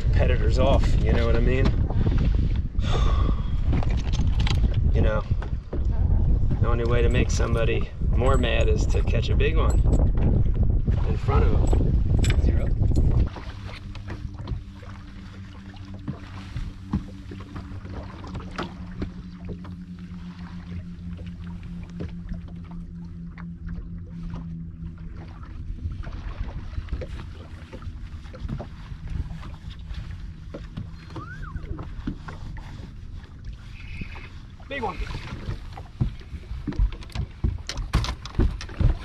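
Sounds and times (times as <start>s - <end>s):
low wind: 0.0s - 39.0s
water noise: 0.0s - 39.0s
electric trolling motor humming: 11.8s - 39.0s.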